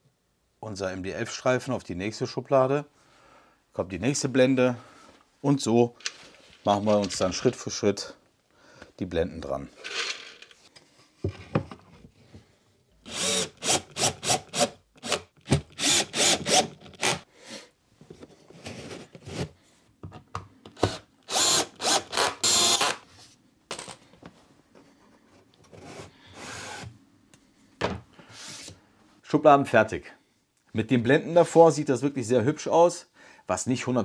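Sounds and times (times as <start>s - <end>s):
cordless drill driving screws: 13.1s - 17.2s, 20.8s - 23.0s, 26.4s - 26.9s.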